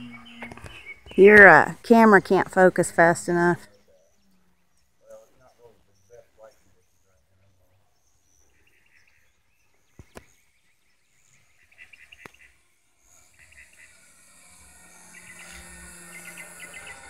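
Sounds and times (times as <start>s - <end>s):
distant model plane engine buzz: 0.0s - 3.6s, 9.0s - 17.0s
chirping trills: 0.0s - 17.0s.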